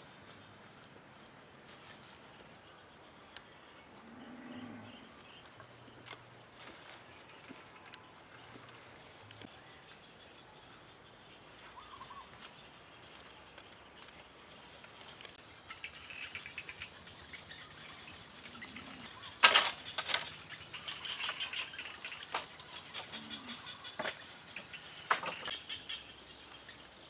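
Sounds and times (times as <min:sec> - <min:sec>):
bamboo poles rustling and clicking: 0:00.0 - 0:03.6, 0:05.1 - 0:09.6, 0:11.5 - 0:16.0, 0:18.0 - 0:27.0
faint bird chirps: 0:01.4 - 0:14.2, 0:15.6 - 0:27.0.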